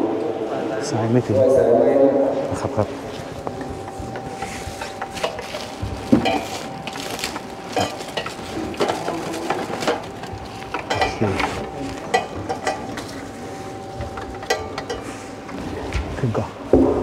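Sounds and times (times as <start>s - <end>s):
objects clinking and knocking: 3.5s - 13.3s.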